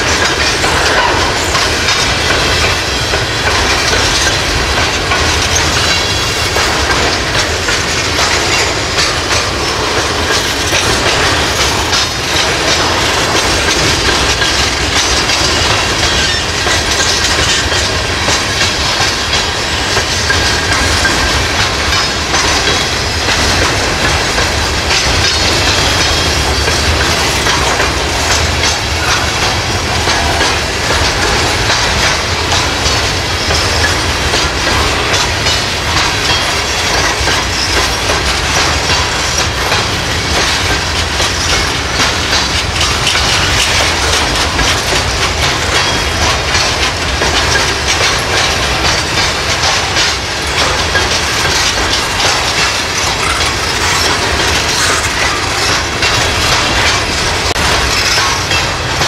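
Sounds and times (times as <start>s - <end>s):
train wheels rumbling on rail: 0.0s - 59.0s
wheels clacking over rail joints: 0.0s - 59.0s.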